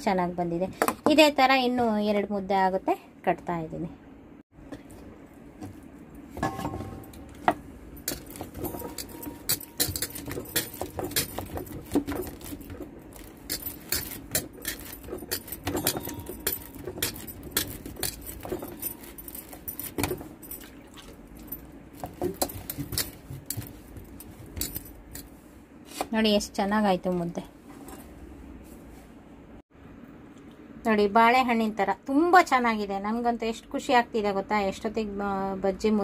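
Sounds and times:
metallic clinks on steel plate: 8.1 - 11.4, 13.5 - 20.2.

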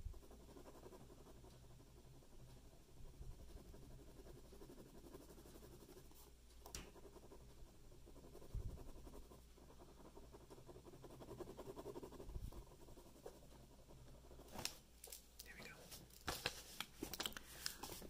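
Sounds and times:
pen scratching on paper: 0.1 - 6.3, 6.9 - 14.7.

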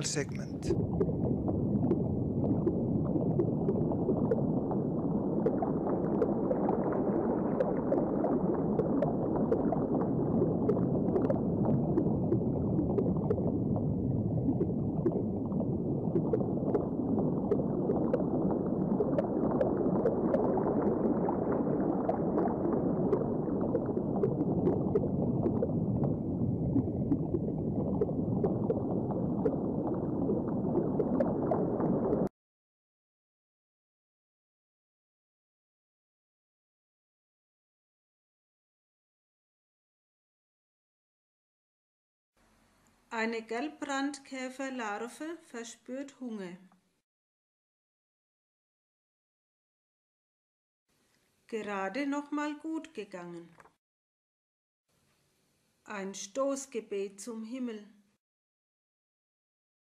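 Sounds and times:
low gurgling water: 0.0 - 32.3.

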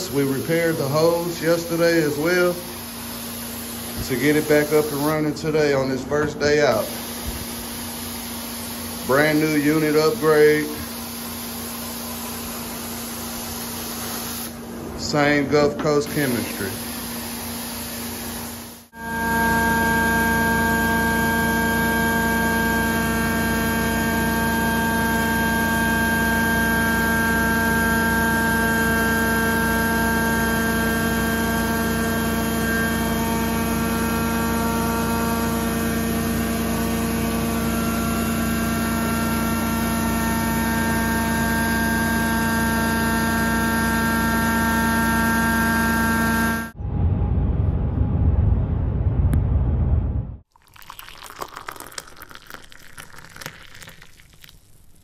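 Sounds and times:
engine and vacuum blower hum: 0.0 - 46.9.

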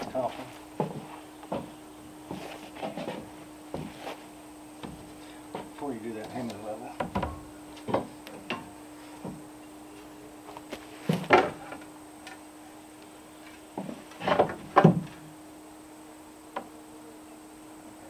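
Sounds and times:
wooden knocks of timber: 0.8 - 2.4, 7.0 - 8.6, 13.8 - 15.2.

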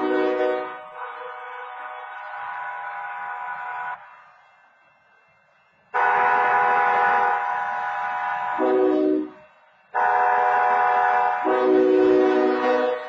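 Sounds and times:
train horn chord blasts: 0.0 - 2.3, 6.0 - 13.0.

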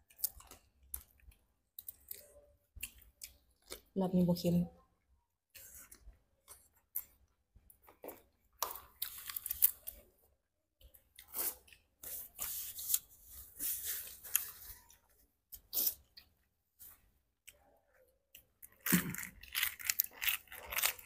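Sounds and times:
chewing: 0.0 - 3.9, 17.4 - 21.0
shrimp shells crackling: 18.7 - 21.0.

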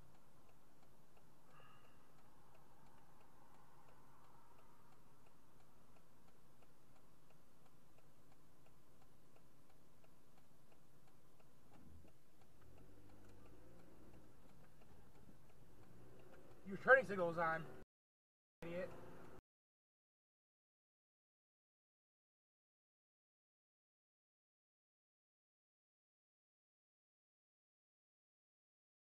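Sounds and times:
turn-signal indicator ticking: 0.0 - 17.8, 18.6 - 19.4.

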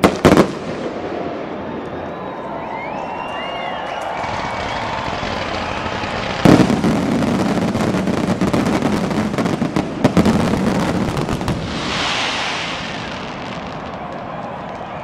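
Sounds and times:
firework crackling: 4.0 - 15.0
firework bang: 4.4 - 14.3
firework hiss: 10.9 - 13.8.

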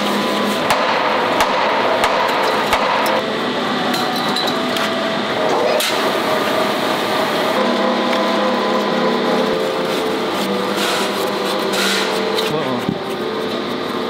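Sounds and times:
sand mixer humming: 5.0 - 14.0.

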